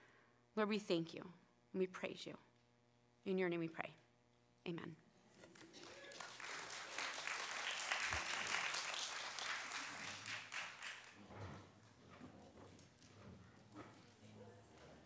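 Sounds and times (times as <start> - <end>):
audience applauding: 5.5 - 11.3.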